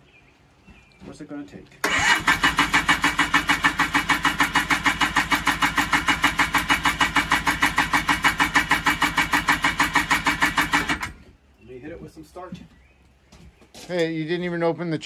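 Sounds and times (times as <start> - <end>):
engine cranking with starter: 1.8 - 11.2.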